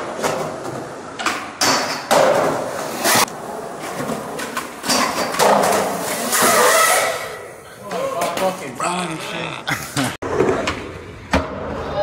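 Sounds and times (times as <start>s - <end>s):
skateboard impacts and landings: 0.0s - 7.1s, 10.2s - 12.0s
skateboard wheels rolling on concrete: 0.0s - 8.6s.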